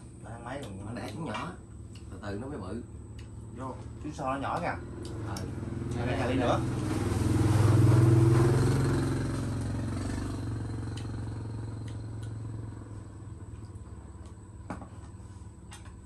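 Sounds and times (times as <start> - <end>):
engine passing by: 2.3 - 16.0.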